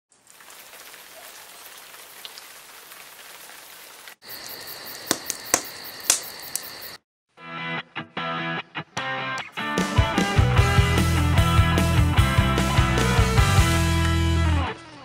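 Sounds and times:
steady rain falling: 0.1s - 6.7s.

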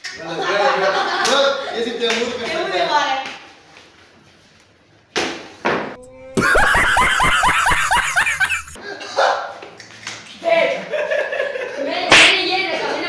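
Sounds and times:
man laughing heartily: 6.3s - 9.2s.

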